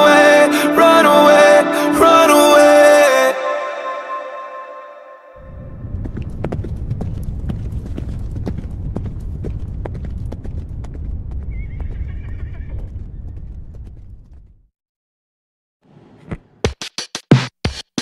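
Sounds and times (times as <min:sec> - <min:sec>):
wind buffeting microphone: 0:05.4 - 0:14.6.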